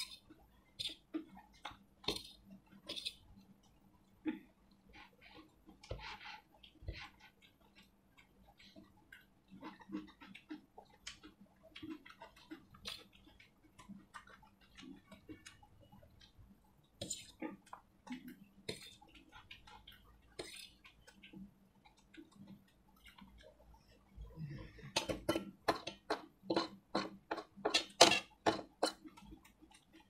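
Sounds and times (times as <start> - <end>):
chewing: 0.0 - 25.0
spoon scraping steel plate: 2.1 - 3.2.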